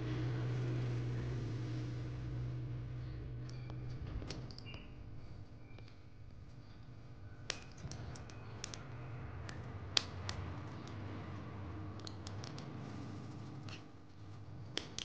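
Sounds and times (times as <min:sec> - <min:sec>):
faint low hum: 0:00.0 - 0:15.0
small sharp plastic clicks: 0:07.5 - 0:11.0, 0:14.7 - 0:15.0.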